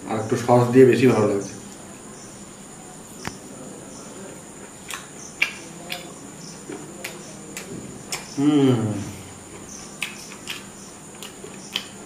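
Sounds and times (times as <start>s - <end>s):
man chewing with wet smacks: 4.8s - 8.4s, 9.3s - 12.0s.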